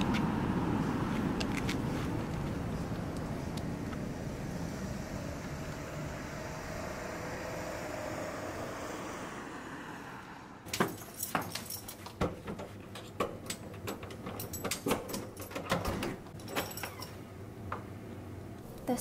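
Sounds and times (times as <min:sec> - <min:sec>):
outdoor traffic noise: 0:00.0 - 0:19.0
keys jangling in door lock: 0:10.7 - 0:17.2.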